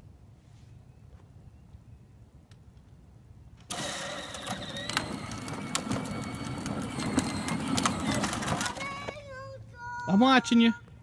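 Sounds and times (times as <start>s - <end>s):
electric motors whining: 3.7s - 9.2s
plastic wheels rattling on pavement: 3.7s - 9.5s.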